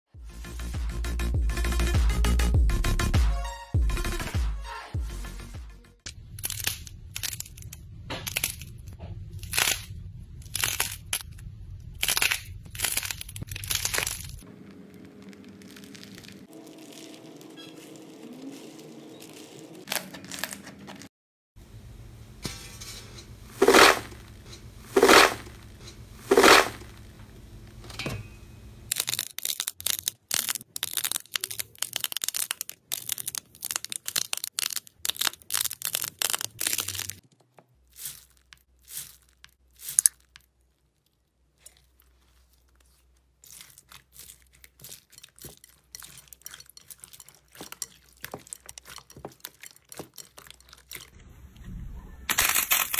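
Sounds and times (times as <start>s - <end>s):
slime crackling and popping: 9.4s - 20.6s, 28.9s - 37.3s, 37.9s - 51.2s.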